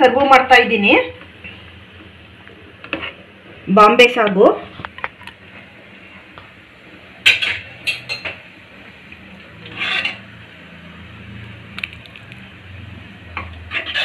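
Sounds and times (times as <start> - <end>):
metal ladle scraping a pan: 7.3 - 8.3, 9.6 - 10.4, 13.6 - 14.0.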